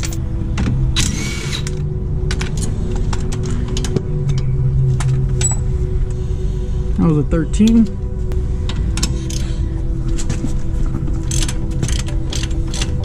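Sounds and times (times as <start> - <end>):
tool and metal parts clicking: 11.2 - 13.0.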